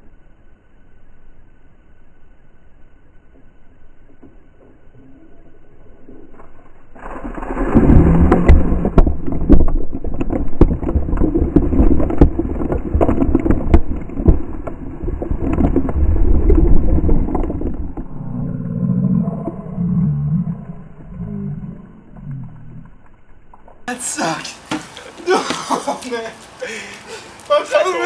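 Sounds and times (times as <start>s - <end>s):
water pouring and splashing: 6.2s - 18.0s.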